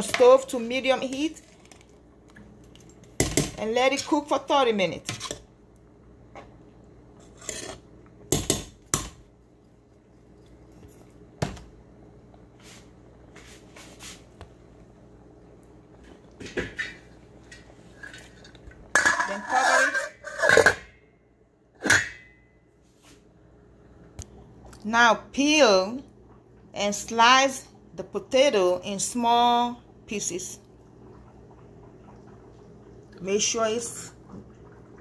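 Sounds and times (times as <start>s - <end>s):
metal cookware clattering: 16.5s - 21.0s, 21.8s - 22.4s
metal pot lid clinking: 18.9s - 20.9s, 21.8s - 22.4s.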